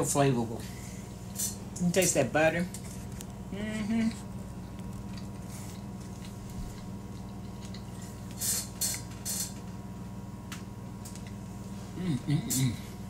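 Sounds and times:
steady low hum: 0.0s - 13.0s
wet chewing sounds: 4.1s - 8.4s.

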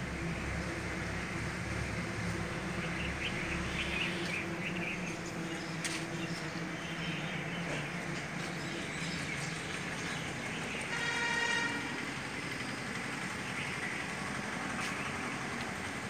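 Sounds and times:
steady low hum: 0.0s - 16.0s
bird chirps: 2.8s - 11.0s.

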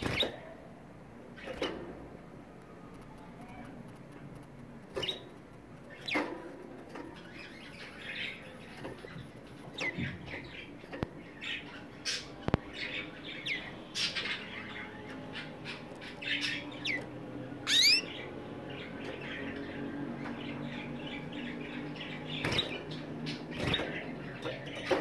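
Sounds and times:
sharp clicks: 2.6s - 7.0s
canaries chirping: 3.1s - 25.0s.

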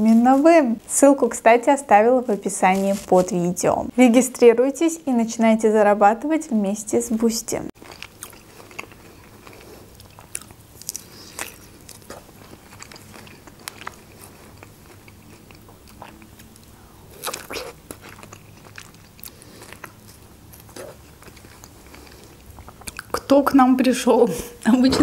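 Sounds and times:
person chewing strawberries: 7.8s - 23.2s.

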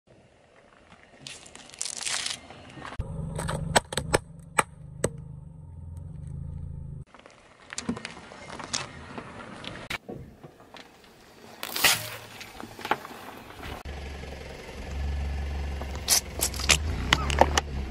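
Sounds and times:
plastic cracking under tyre: 1.2s - 2.5s
low engine hum: 2.9s - 7.1s, 13.4s - 17.9s.

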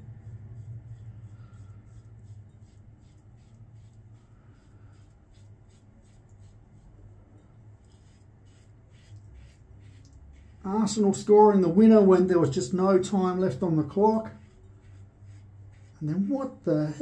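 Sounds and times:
razor scraping stubble: 7.8s - 16.9s.

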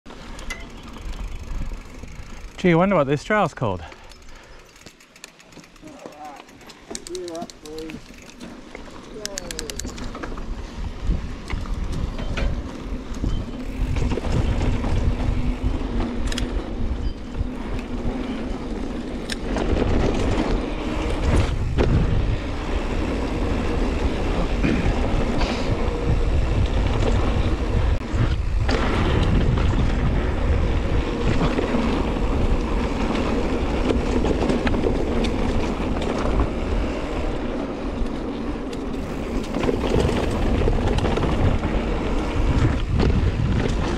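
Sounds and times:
bike tyre noise on dirt: 0.1s - 43.9s
wind on microphone: 9.4s - 18.4s, 19.3s - 37.5s, 39.0s - 43.9s
bike knocking over bumps: 39.0s - 43.9s.

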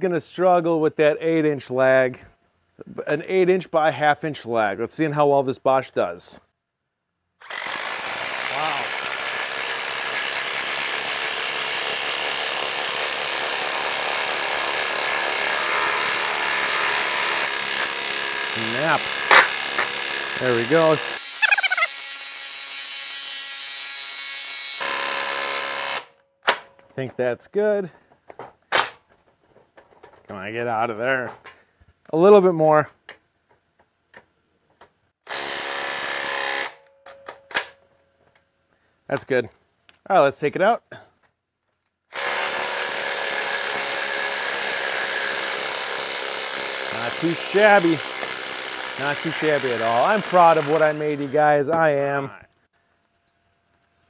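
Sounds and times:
impact driver hammering: 7.4s - 20.5s, 42.2s - 51.1s
impact drivers hammering: 18.9s - 20.2s.

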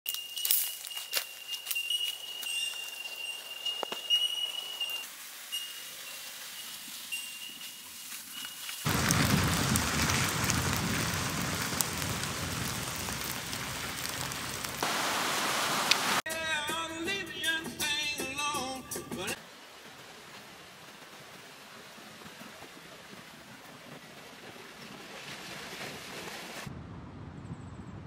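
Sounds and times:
surf breaking on beach: 8.8s - 16.3s
music with singing: 16.3s - 19.4s.

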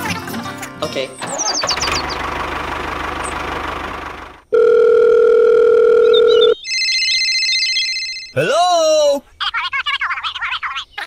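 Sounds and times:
telephone dial tone: 4.5s - 8.3s
high-pitched phone tone: 4.5s - 8.4s.

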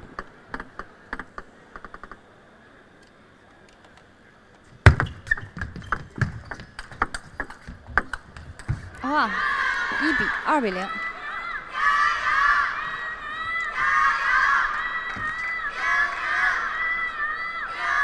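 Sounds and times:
ball knocking off rackets and table: 4.8s - 9.0s
table tennis ball bouncing: 4.8s - 9.0s.

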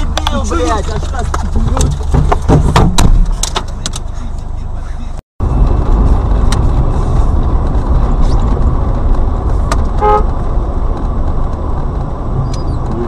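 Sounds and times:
car engine and road rumble: 0.0s - 13.0s
car horn toot: 9.9s - 10.3s.

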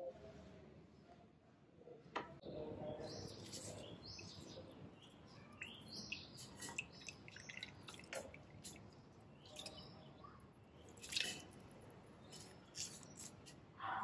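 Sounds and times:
water dripping and trickling: 5.5s - 13.5s.

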